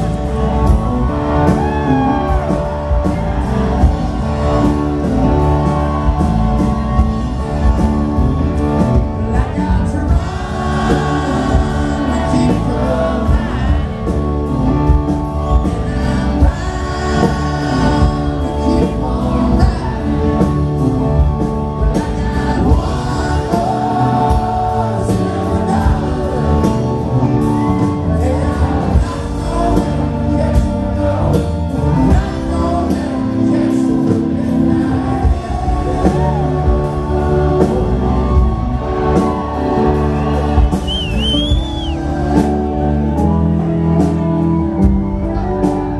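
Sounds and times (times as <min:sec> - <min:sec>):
distorted electric guitars: 0:00.0 - 0:45.9
drum kit: 0:00.0 - 0:45.9
live rock band playing: 0:00.0 - 0:45.9
man singing: 0:09.0 - 0:44.5.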